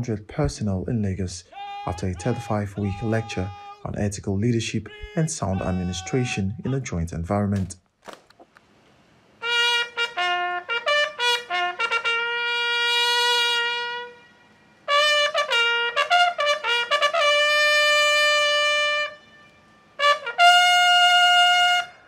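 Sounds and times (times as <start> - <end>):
bugle sounding a call: 1.5 - 4.0, 4.7 - 7.0, 9.4 - 22.0.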